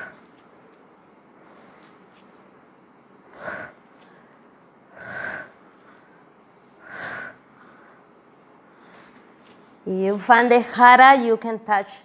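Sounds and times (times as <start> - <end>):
woman breathing forcefully: 0.0 - 0.7, 3.2 - 9.3.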